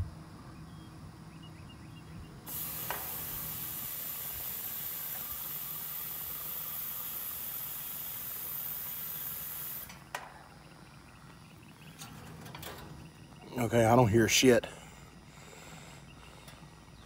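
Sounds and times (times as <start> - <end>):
nitrogen hissing through hoses: 2.5 - 10.0.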